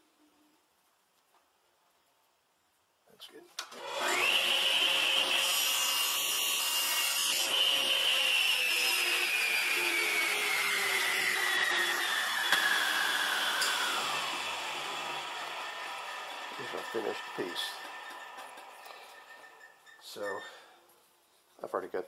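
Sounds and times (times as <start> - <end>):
table saw blade whine: 3.8 - 20.6.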